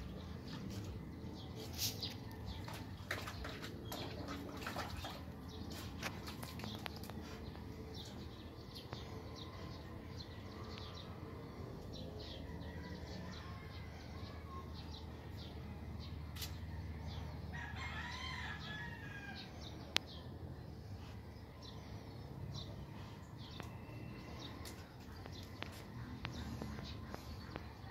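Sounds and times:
birds chirping: 0:00.0 - 0:27.9
rooster crowing: 0:17.5 - 0:19.5.

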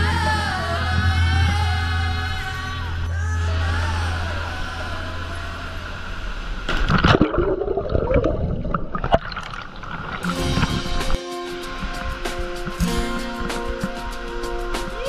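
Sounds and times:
underwater bubbling and gurgling: 0:06.7 - 0:11.2
waterfall rushing: 0:09.7 - 0:15.0.

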